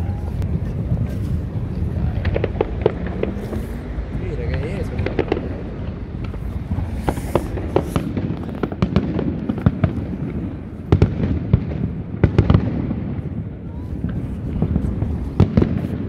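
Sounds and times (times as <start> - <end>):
low rumble: 0.0 - 12.2
fireworks bangs and crackles: 0.0 - 16.0.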